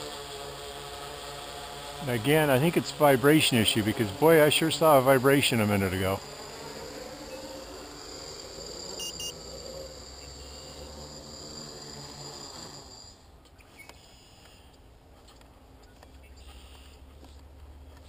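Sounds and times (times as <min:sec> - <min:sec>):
drone motors whining: 0:00.0 - 0:14.6
short high beeps: 0:09.0 - 0:09.4.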